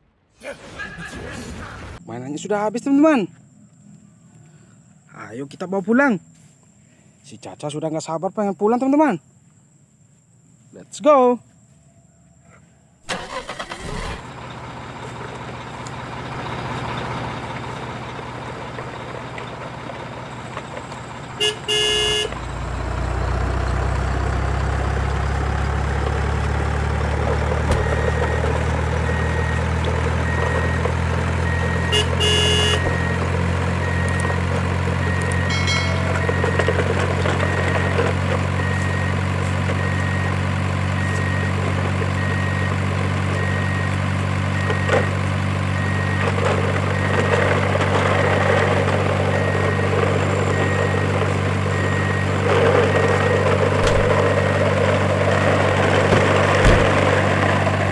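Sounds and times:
truck engine idling: 13.0s - 57.9s
horn toot: 21.4s - 22.4s, 31.9s - 32.9s
faint beeping: 35.0s - 39.2s.

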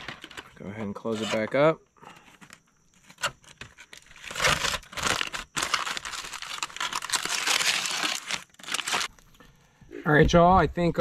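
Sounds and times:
aluminium foil crinkling: 2.1s - 9.3s.

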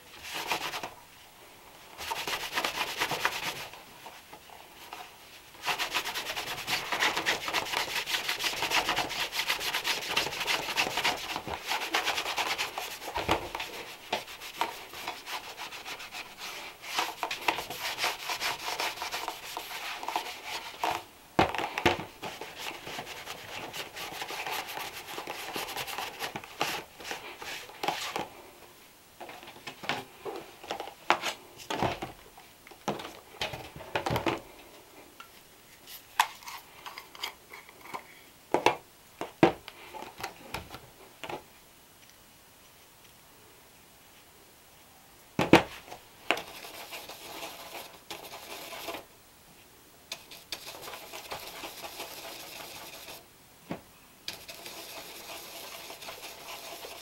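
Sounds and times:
brush scrubbing leather shoe: 2.0s - 3.8s, 5.6s - 20.9s, 46.4s - 49.1s, 50.2s - 53.2s, 54.3s - 57.0s.

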